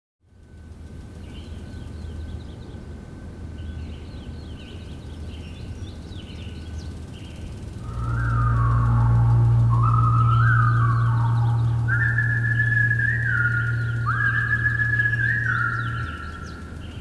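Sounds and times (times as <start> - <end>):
birds chirping: 3.9 - 17.0
steady low rumble: 7.6 - 17.0
deep bass note: 7.8 - 16.5
whistled melody: 7.8 - 16.8.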